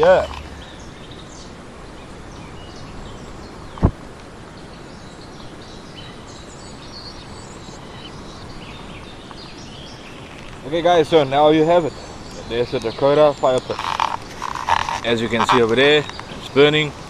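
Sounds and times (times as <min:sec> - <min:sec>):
steady hiss: 0:00.0 - 0:17.0
faint bird chirps: 0:04.6 - 0:17.0.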